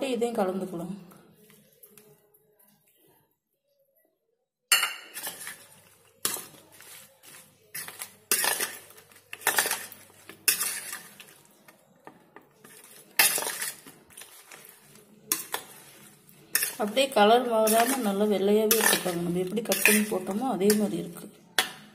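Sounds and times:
spoon clinking on metal bowl: 4.7 - 11.4, 12.6 - 14.2, 15.3 - 15.9, 16.5 - 21.0
spoon scraping metal bowl: 4.7 - 11.8, 12.4 - 21.8.

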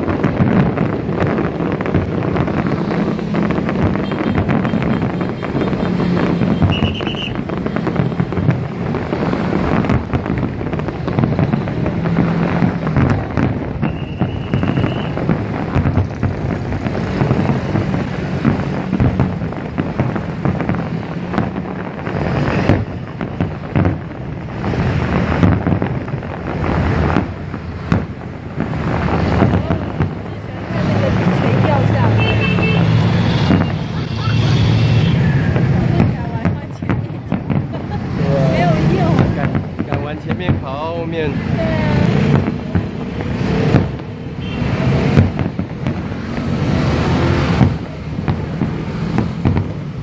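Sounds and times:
fireworks booms and crackles: 0.0 - 50.0
fireworks high whistles: 1.3 - 25.8, 30.8 - 35.8, 42.0 - 49.9.

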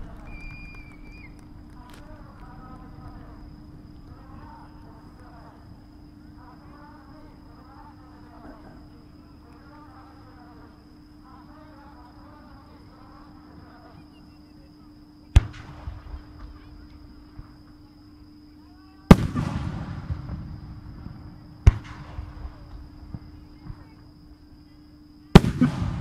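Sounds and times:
distant fireworks bangs: 0.0 - 5.4, 15.4 - 17.6, 19.1 - 24.1, 25.3 - 26.0
rumbling echo: 19.1 - 23.2, 25.4 - 26.0.

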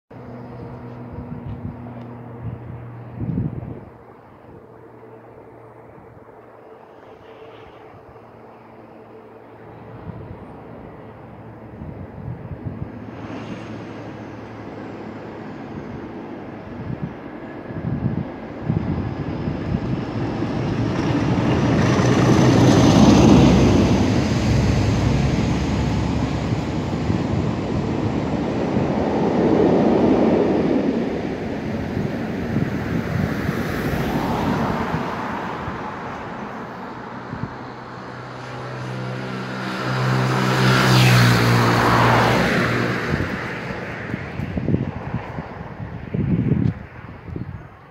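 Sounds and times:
diesel locomotive engines: 0.1 - 47.9
train wheel noise: 19.6 - 31.7.

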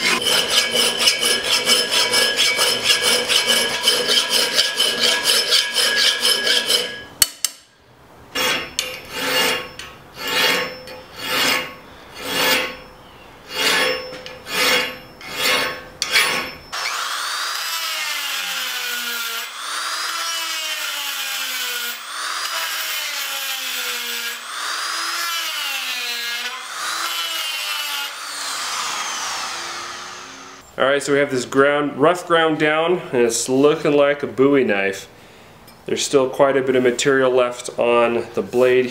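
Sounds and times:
hand file rasping on steel: 0.0 - 7.0, 8.4 - 12.8, 13.5 - 16.6
rotary tool grinding steel: 0.0 - 7.1, 8.4 - 12.9, 13.5 - 30.6.

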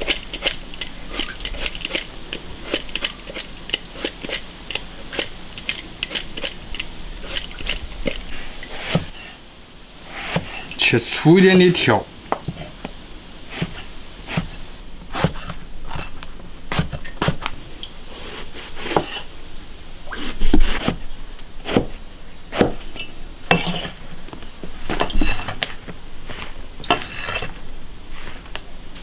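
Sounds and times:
high insect hum: 0.0 - 29.0
insects chirping: 0.0 - 29.0
cleaver chopping on wooden block: 21.6 - 21.9, 22.5 - 22.8.

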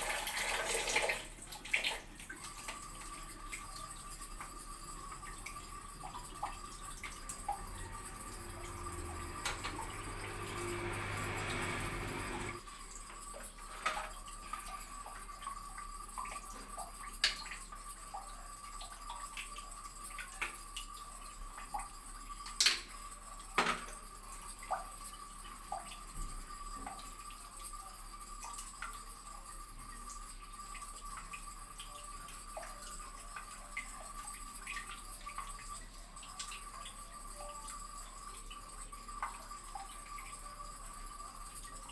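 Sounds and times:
water dripping: 0.0 - 41.9
water running: 0.0 - 41.9.

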